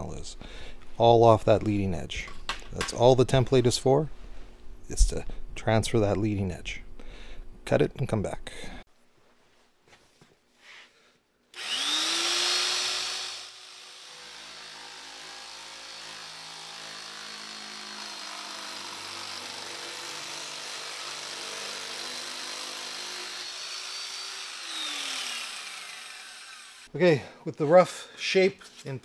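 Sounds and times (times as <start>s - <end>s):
electric metal shear whining: 11.6s - 26.9s.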